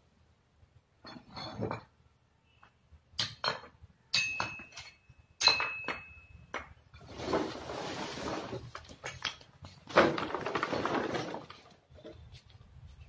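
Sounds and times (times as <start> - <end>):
thin ringing tone: 4.2 - 6.5
sack scraping across floor: 7.1 - 8.7.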